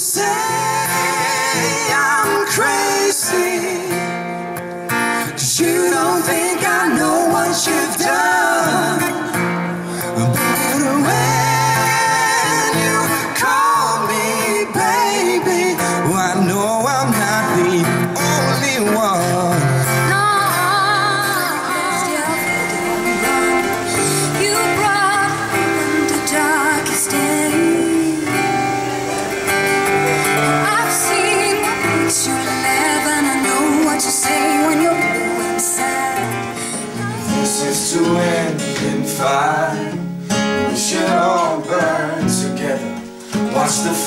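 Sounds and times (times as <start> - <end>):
woman singing: 0.0 - 4.0, 5.2 - 9.4, 10.6 - 16.3, 19.8 - 29.4, 30.2 - 39.6
acoustic guitars: 0.0 - 44.0.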